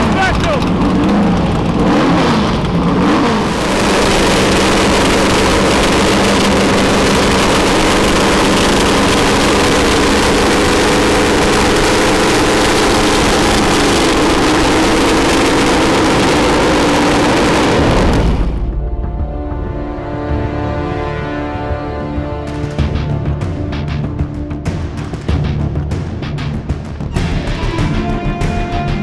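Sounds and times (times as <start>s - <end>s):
racing car engine revving: 0.0s - 18.8s.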